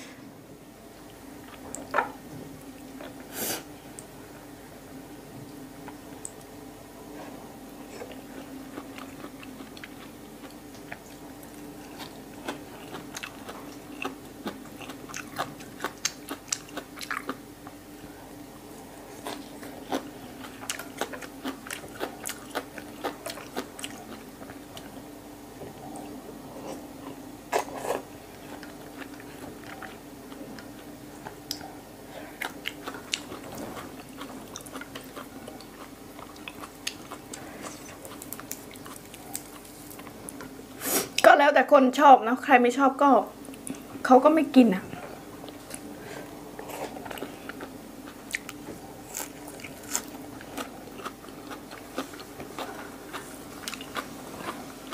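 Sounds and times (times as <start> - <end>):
person chewing wet crunches: 7.8 - 25.1, 25.7 - 41.2, 45.4 - 54.9.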